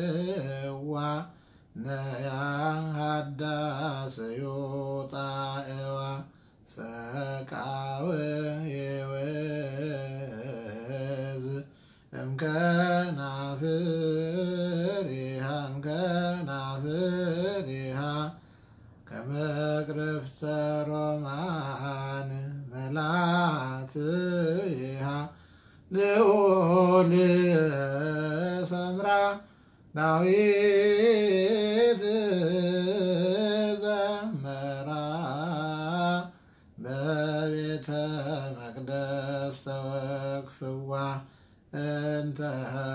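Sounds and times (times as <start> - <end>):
man chanting a hymn: 0.0 - 42.9
breath: 1.3 - 1.8, 6.3 - 6.7, 11.7 - 12.1, 18.4 - 19.0, 25.3 - 25.9, 29.4 - 29.9, 36.3 - 36.8, 41.2 - 41.7.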